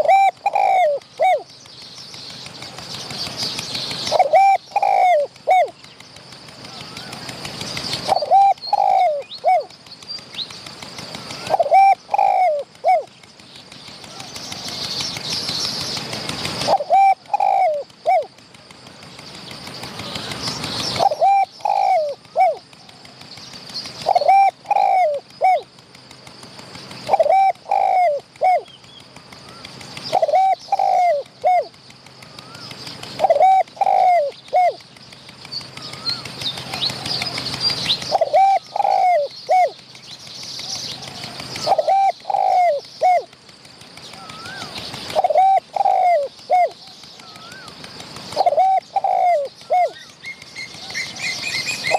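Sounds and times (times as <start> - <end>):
doves cooing: 0.0 - 1.6, 2.3 - 39.9, 40.6 - 51.9.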